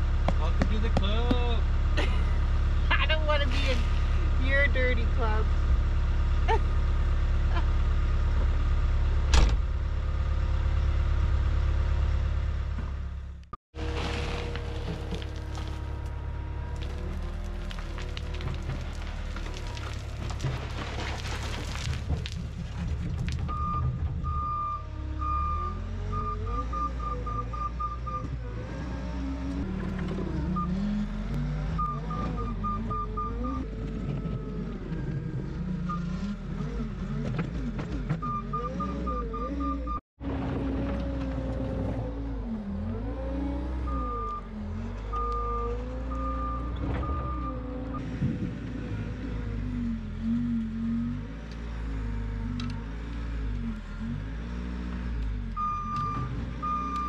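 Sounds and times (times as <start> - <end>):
reversing alarm beeps: 23.5 - 28.3, 31.8 - 33.6, 38.2 - 40.0.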